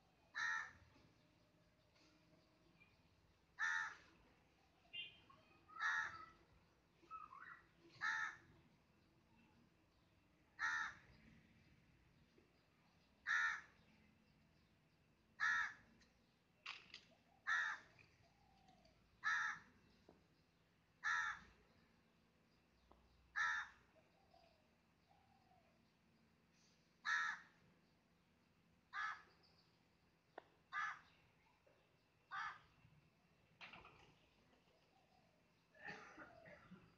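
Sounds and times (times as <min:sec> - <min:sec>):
crow cawing: 0:00.3 - 0:00.8, 0:03.6 - 0:04.1, 0:05.7 - 0:06.4, 0:08.0 - 0:08.4, 0:10.6 - 0:11.0, 0:13.2 - 0:13.7, 0:15.4 - 0:15.8, 0:17.5 - 0:18.0, 0:19.2 - 0:19.7, 0:21.0 - 0:21.5, 0:23.4 - 0:23.8, 0:27.0 - 0:27.5, 0:28.9 - 0:29.3, 0:30.7 - 0:31.1, 0:32.3 - 0:32.7.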